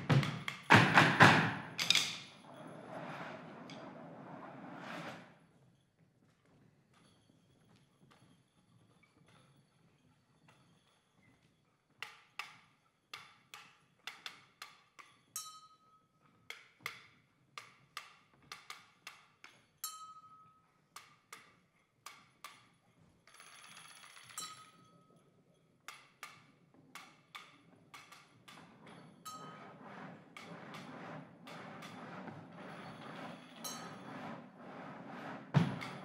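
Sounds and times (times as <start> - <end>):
wooden sticks knocking: 0.1 - 2.3.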